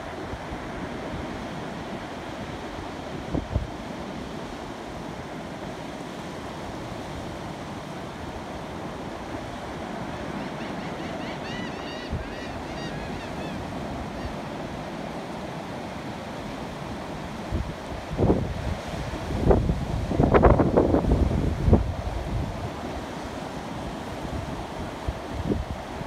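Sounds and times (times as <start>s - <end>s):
wind on microphone: 0.0s - 5.2s, 17.2s - 26.0s
ocean surf washing up: 0.0s - 26.0s
bird short calls: 10.4s - 14.5s.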